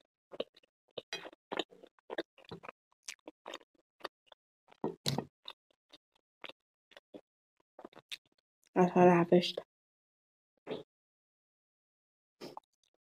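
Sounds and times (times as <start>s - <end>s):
close chewing mouth sounds: 0.0s - 7.2s, 7.8s - 8.4s.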